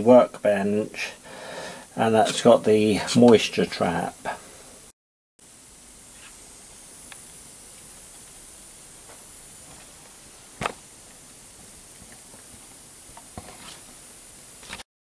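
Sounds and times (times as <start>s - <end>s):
faint high-pitched hiss: 0.0s - 14.8s
small ticks: 7.0s - 10.0s.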